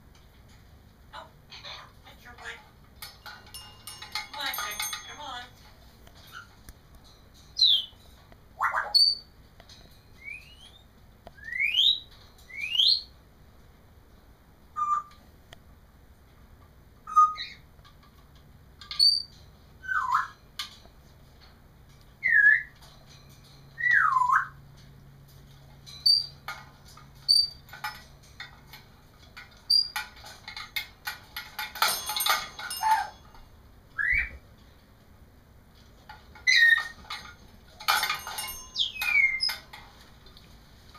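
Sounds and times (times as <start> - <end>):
parrot chirps: 8.6 - 9.3, 14.8 - 15.2, 17.0 - 17.7, 19.0 - 20.4, 23.8 - 24.6, 36.4 - 37.0
parrot whistling: 14.8 - 15.1.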